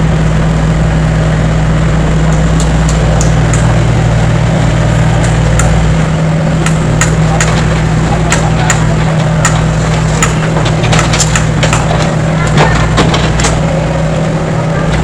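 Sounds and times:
diesel engine running: 0.0 - 15.0
short sharp clicks and knocks: 6.6 - 13.7.

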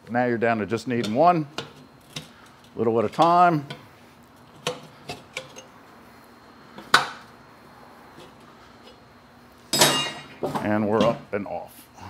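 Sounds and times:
sharp metallic clank: 9.7 - 10.4.

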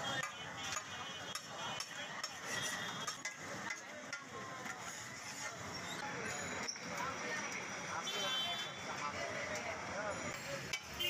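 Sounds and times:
metal utensils clinking on cookware: 0.1 - 5.9
utensils scraping steel cookware: 0.1 - 6.8.

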